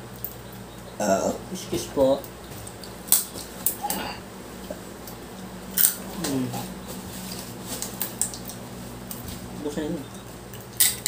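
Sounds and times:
crab shells cracking: 0:02.2 - 0:03.9, 0:05.8 - 0:06.1, 0:07.8 - 0:09.2, 0:10.5 - 0:11.0.

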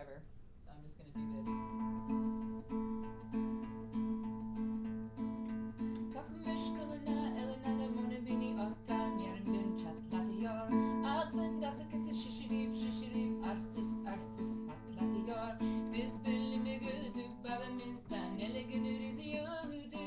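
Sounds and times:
acoustic guitar strumming: 0:01.0 - 0:20.0
woman singing: 0:06.0 - 0:20.0.

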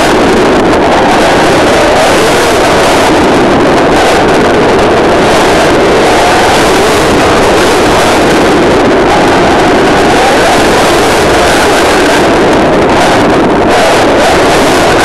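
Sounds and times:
distorted rushing noise: 0:00.0 - 0:15.0.

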